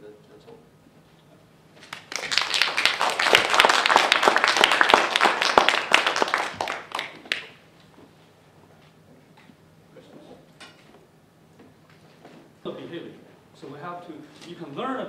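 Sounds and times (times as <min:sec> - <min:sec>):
audience applauding: 0:01.8 - 0:07.6.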